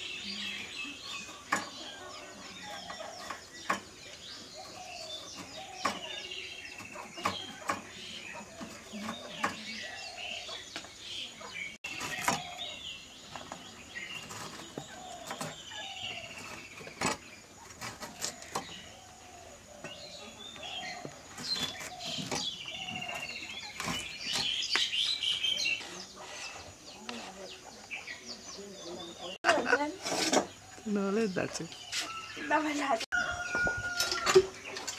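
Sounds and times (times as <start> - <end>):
small birds chirping: 0.0 - 34.9.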